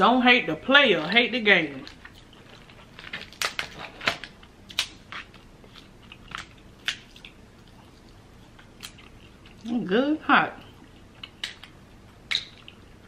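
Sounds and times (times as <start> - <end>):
crab shells cracking: 1.9 - 7.4, 11.2 - 12.8
eating sounds: 4.7 - 9.8, 10.6 - 13.0.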